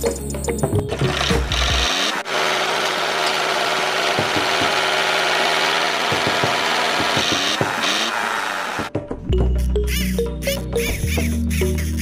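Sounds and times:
music: 0:00.0 - 0:01.8, 0:08.9 - 0:12.0
small electric motors whirring: 0:01.0 - 0:08.9.

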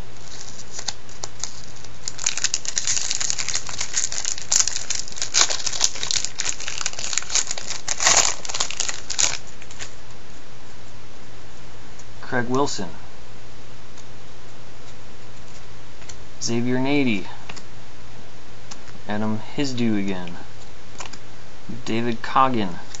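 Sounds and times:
foil wrapper crinkling and tearing: 0:00.2 - 0:10.0.

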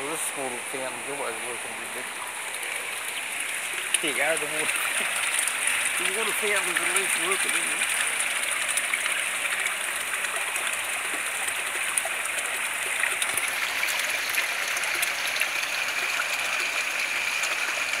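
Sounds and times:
fountain water splashing: 0:00.0 - 0:18.0.

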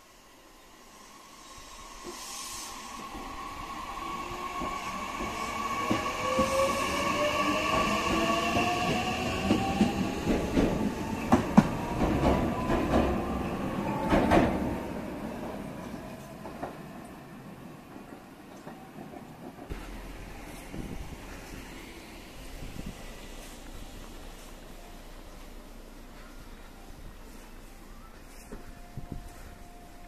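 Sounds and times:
train wheels clicking over rail joints: 0:04.5 - 0:13.4.

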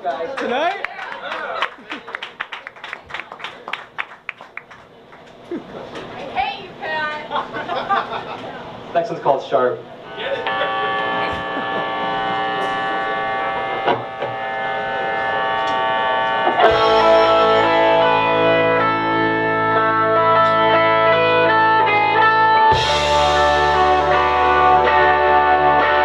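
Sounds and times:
electric guitar ringing chords: 0:10.0 - 0:26.0
bass guitar: 0:10.4 - 0:26.0
drums: 0:15.4 - 0:26.0.

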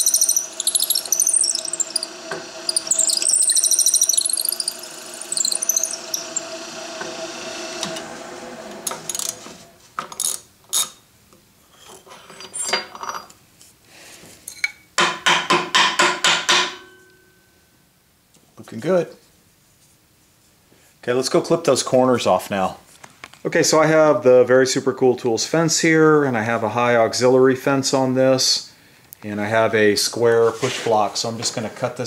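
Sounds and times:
ratchet clicks: 0:00.0 - 0:02.1, 0:02.7 - 0:06.4
drill bit squealing in wood: 0:00.0 - 0:06.8, 0:08.8 - 0:09.6
drill press motor hum: 0:00.0 - 0:09.8.

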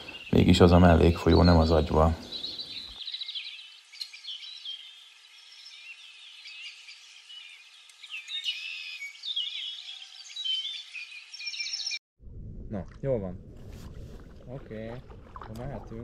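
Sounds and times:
songbirds chirping and singing: 0:00.0 - 0:12.0.

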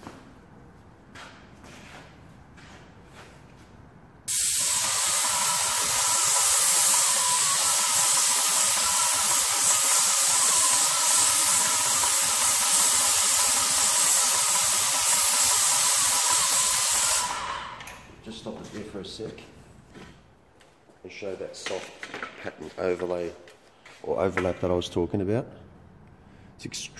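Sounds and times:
paint spray gun hissing: 0:04.3 - 0:17.8.

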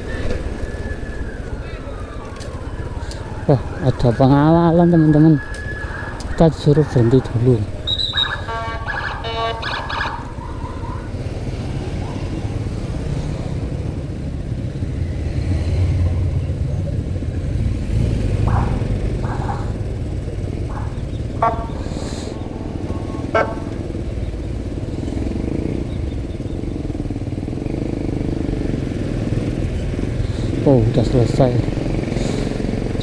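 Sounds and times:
passing vehicles rumbling: 0:00.0 - 0:33.0
motorcycle engine idling: 0:18.4 - 0:28.7.

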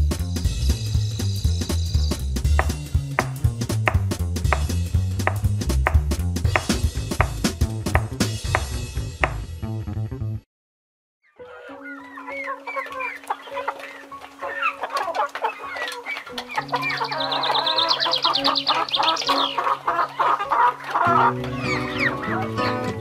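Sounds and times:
small birds chirping: 0:00.2 - 0:05.4, 0:11.2 - 0:23.0
chickens clucking: 0:11.4 - 0:23.0
guitar music: 0:11.5 - 0:23.0.

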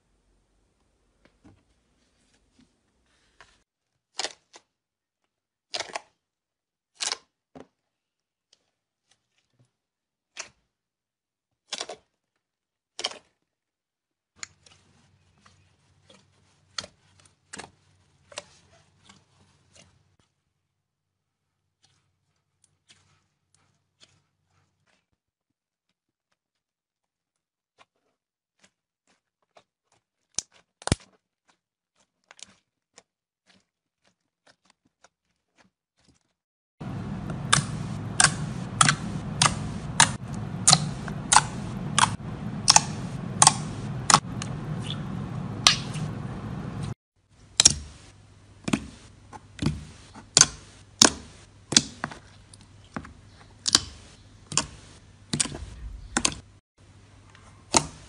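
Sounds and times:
slime popping air clicks: 0:37.3 - 0:44.9.

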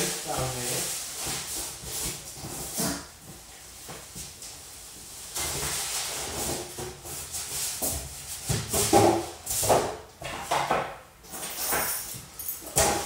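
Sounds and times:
cardboard rustling and scraping: 0:05.3 - 0:09.9.

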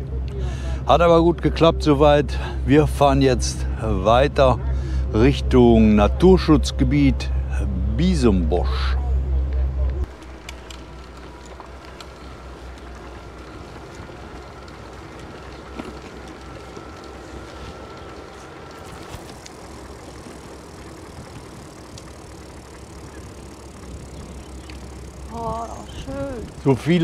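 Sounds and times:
bicycle tyres rolling: 0:00.0 - 0:27.0
faint steady whine: 0:00.0 - 0:27.0
wind rumbling on microphone: 0:08.5 - 0:27.0
small clicks and rattles: 0:10.0 - 0:27.0.

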